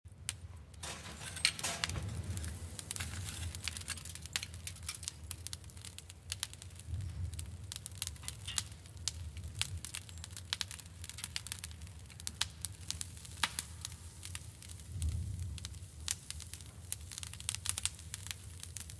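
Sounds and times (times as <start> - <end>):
charcoal crackling and popping: 0.1 - 18.9
low rumble of fire: 0.1 - 18.9.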